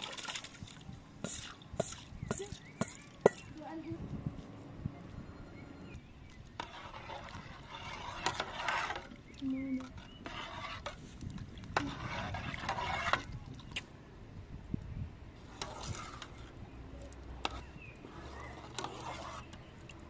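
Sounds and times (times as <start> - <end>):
spatula scraping steel pot: 5.6 - 13.5, 15.4 - 20.0.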